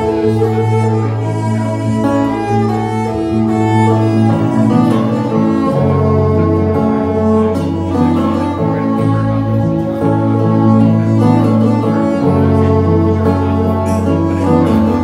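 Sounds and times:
acoustic guitar: 0.0s - 15.0s
fiddle melody: 0.0s - 15.0s.

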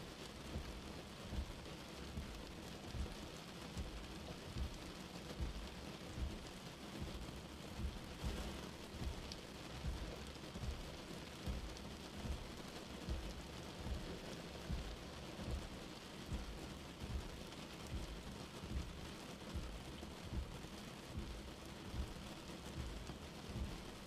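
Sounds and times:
rain on a car windscreen: 0.0s - 24.0s
windscreen wipers thumping: 3.8s - 7.2s, 7.8s - 17.3s, 17.9s - 24.0s.

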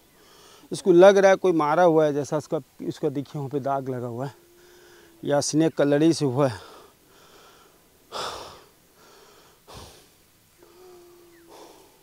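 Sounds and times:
snake hissing: 4.2s - 5.3s, 6.4s - 12.0s.

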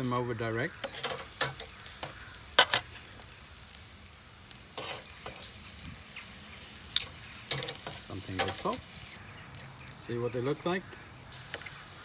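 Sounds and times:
metal tongs clicking on grate: 0.0s - 2.9s, 7.0s - 8.7s
steaks sizzling on a grill: 0.0s - 12.0s.

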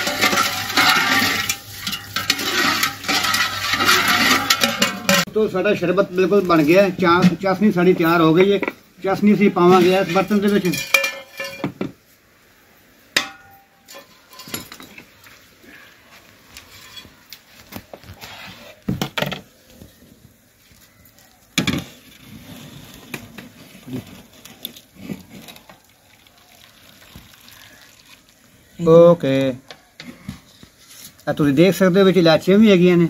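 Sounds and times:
steel pot knocking and clinking: 0.0s - 5.3s, 9.8s - 12.0s, 13.2s - 15.1s.

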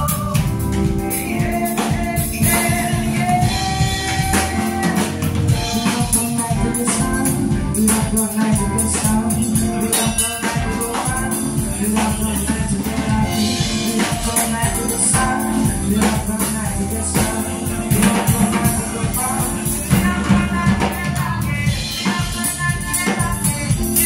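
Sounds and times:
drum kit beat: 0.0s - 24.0s
keyboard: 0.0s - 24.0s
man singing into microphone: 0.0s - 24.0s.

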